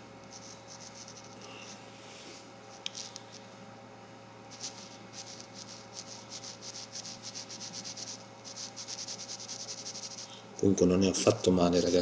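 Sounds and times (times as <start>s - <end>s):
pen scratching on paper: 0.3s - 1.4s, 4.5s - 10.3s.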